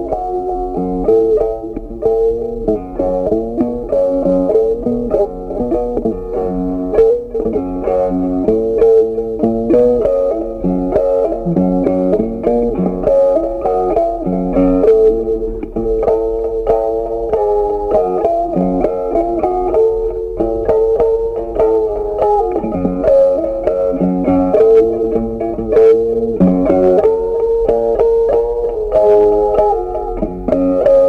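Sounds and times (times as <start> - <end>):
plucked guitar tune: 0.0 - 31.0.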